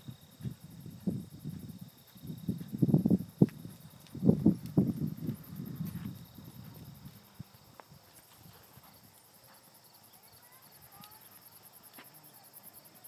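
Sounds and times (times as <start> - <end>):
horse hoofbeats on sand: 0.0 - 7.3.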